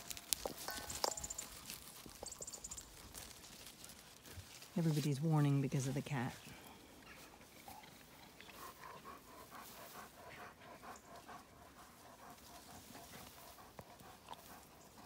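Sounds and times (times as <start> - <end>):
dog panting: 0.1 - 4.4, 8.1 - 15.0.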